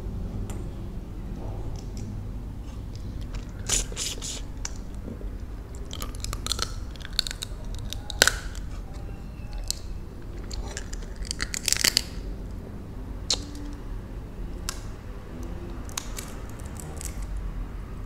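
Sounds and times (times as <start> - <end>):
wet chewing: 2.7 - 12.3
crab shell cracking: 5.7 - 8.9, 9.6 - 12.3, 15.9 - 17.3.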